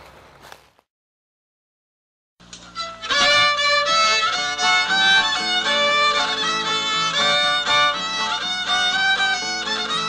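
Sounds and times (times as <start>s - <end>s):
fiddle tune: 2.4s - 10.0s.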